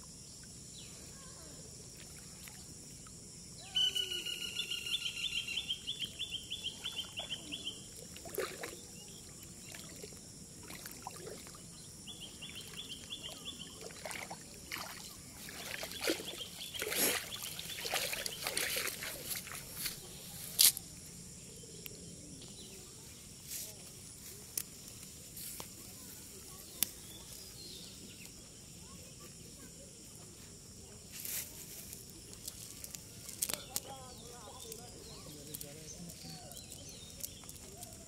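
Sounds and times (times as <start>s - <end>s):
high insect drone: 0.0s - 38.0s
water sloshing and dripping: 7.0s - 11.7s, 12.5s - 20.0s.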